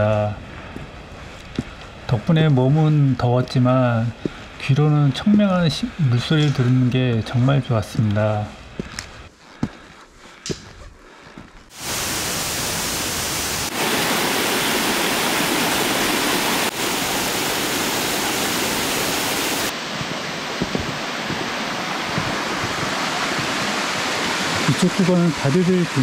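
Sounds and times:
stream rushing over rocks: 0:11.8 - 0:26.0.

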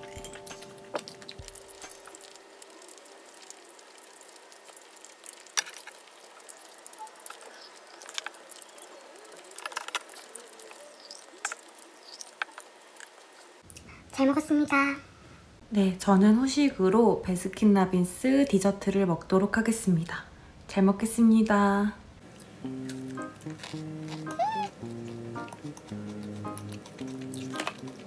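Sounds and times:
background music: 0:00.0 - 0:02.8, 0:22.6 - 0:28.0
chewing and swallowing: 0:22.3 - 0:28.0.

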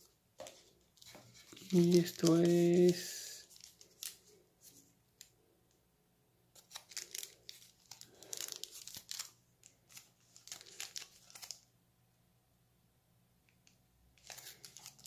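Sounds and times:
packaging crinkling and rustling: 0:00.4 - 0:05.3, 0:06.6 - 0:11.7, 0:14.2 - 0:15.0.

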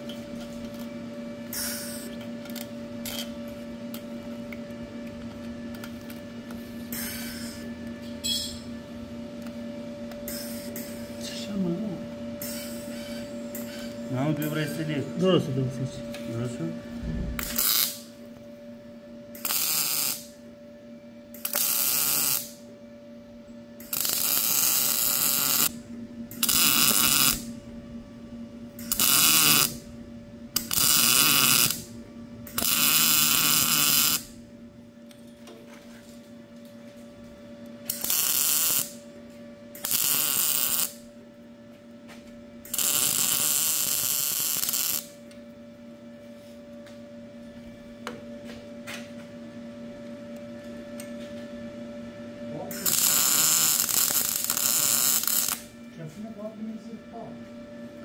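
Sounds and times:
steady welder hum: 0:00.0 - 0:58.0
welder crackling: 0:17.4 - 0:18.1, 0:19.4 - 0:20.3, 0:21.4 - 0:22.6, 0:23.8 - 0:25.8, 0:26.4 - 0:27.5, 0:28.8 - 0:29.8, 0:30.6 - 0:31.9, 0:32.5 - 0:34.4, 0:37.9 - 0:39.0, 0:39.8 - 0:41.0, 0:42.7 - 0:45.2, 0:52.7 - 0:55.7.

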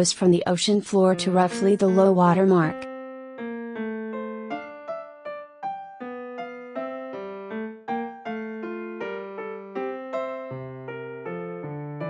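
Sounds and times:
melody of single struck notes: 0:01.3 - 0:02.8.

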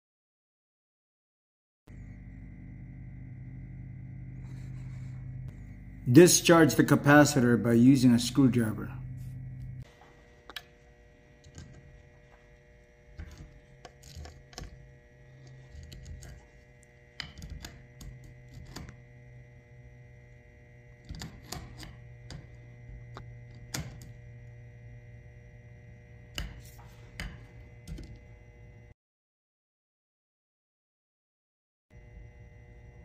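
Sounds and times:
faint steady hum: 0:01.9 - 0:29.0, 0:31.9 - 0:33.0
screwdriver clicking on metal terminals: 0:11.4 - 0:19.0, 0:21.0 - 0:24.2.

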